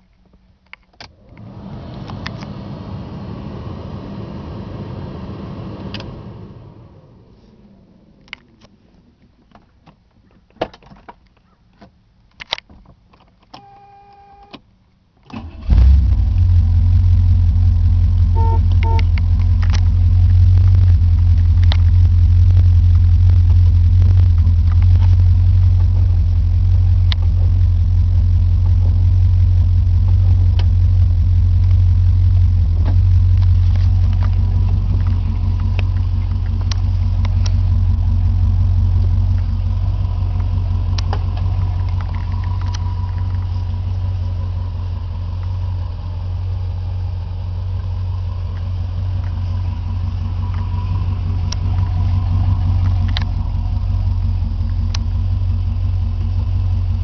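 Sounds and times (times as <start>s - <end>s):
car engine starting and idling: 0.6s - 10.0s, 13.5s - 57.0s
short tone: 13.6s - 14.6s, 18.3s - 19.2s.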